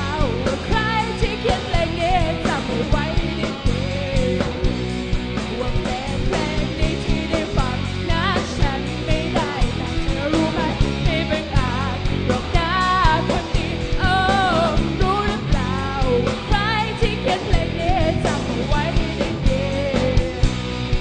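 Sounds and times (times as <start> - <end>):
person singing: 0.0 - 4.8, 5.4 - 20.6
rock band playing live: 0.0 - 21.0.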